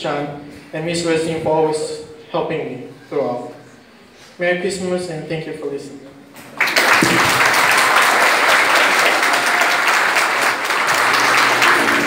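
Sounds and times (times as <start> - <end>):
audience applauding: 6.5 - 12.0.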